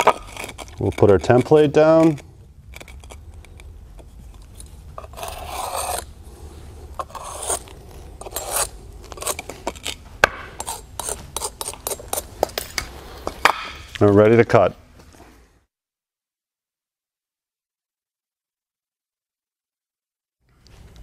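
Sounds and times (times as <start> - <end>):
marker scraping on clay: 0.0 - 13.4.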